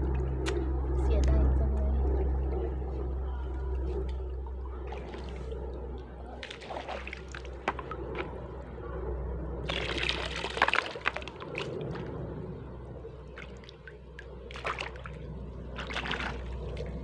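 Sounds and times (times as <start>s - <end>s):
bucket splashing in water: 6.4s - 8.3s, 9.7s - 12.0s, 15.8s - 16.9s.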